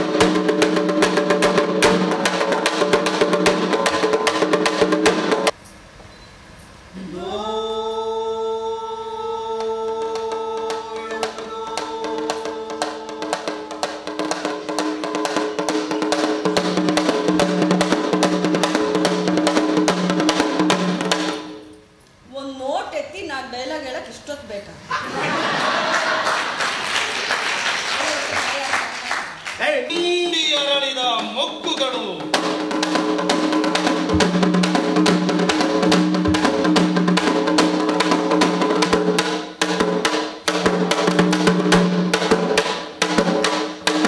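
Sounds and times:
frame drum beaten fast: 0.0s - 5.6s, 10.0s - 21.6s, 30.6s - 44.0s
person singing long note: 6.9s - 14.4s.

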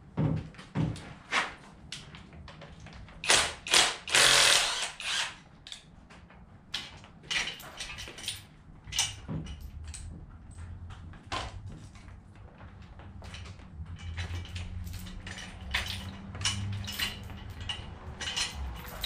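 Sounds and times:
tools knocking on engine parts: 13.3s - 19.0s.

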